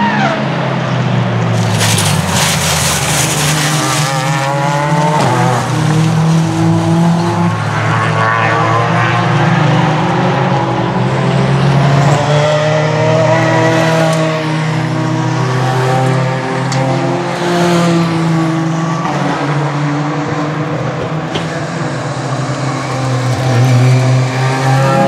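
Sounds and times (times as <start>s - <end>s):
racing car engines passing: 0.0s - 25.0s
car running across dirt hiss: 1.5s - 4.6s.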